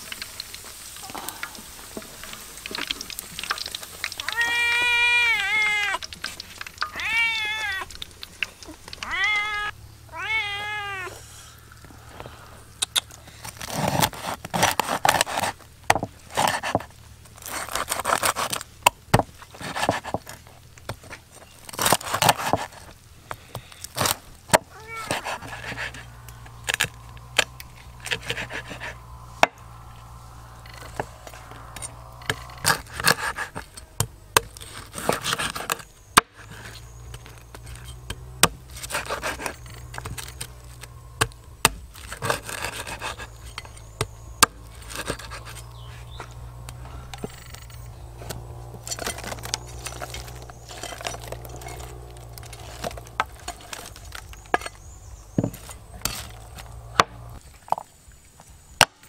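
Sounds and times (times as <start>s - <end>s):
knife crunching crispy pork skin: 12.8s - 15.6s, 16.3s - 18.7s, 21.0s - 24.3s, 30.7s - 33.7s, 38.7s - 55.2s.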